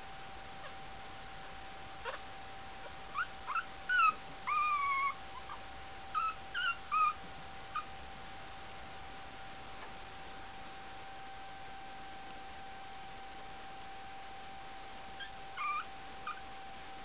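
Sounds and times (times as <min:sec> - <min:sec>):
puppy whimpering: 0:02.0 - 0:02.2, 0:02.8 - 0:07.9, 0:15.2 - 0:16.5.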